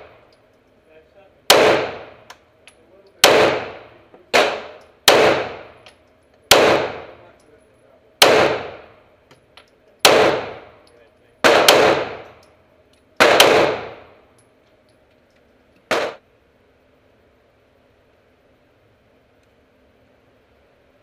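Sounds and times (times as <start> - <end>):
pistol shots indoors: 6.5 - 7.1, 10.0 - 10.7, 11.4 - 12.4, 13.2 - 14.1.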